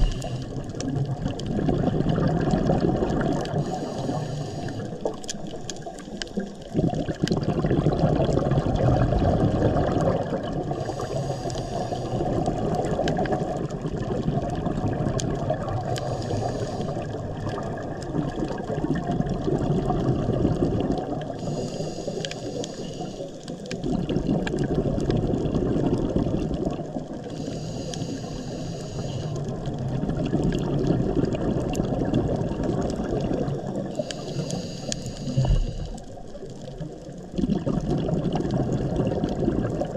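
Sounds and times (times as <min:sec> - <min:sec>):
regulator inhale hiss: 0:00.0 - 0:00.7, 0:03.5 - 0:05.4, 0:10.7 - 0:12.4, 0:15.9 - 0:17.2, 0:21.3 - 0:23.8, 0:27.2 - 0:29.6, 0:33.8 - 0:36.2
exhaled bubbles rushing: 0:00.0 - 0:04.2, 0:04.8 - 0:21.5, 0:23.6 - 0:27.4, 0:29.3 - 0:34.1, 0:35.3 - 0:39.9.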